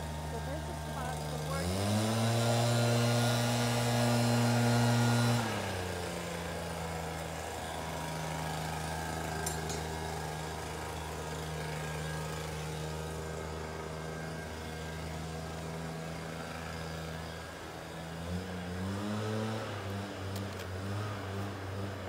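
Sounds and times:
small engine running: 0.0s - 22.0s.

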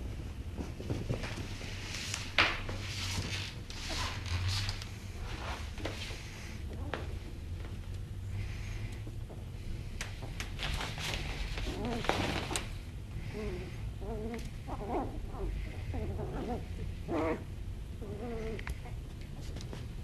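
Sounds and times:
puppies scuffling: 0.0s - 12.9s
puppy whines and growls: 11.6s - 19.1s.

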